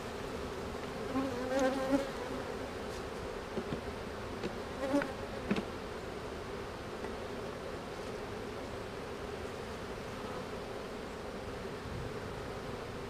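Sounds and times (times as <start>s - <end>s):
bee droning past close: 0.0s - 4.1s, 7.6s - 13.0s
bees buzzing: 0.0s - 13.0s.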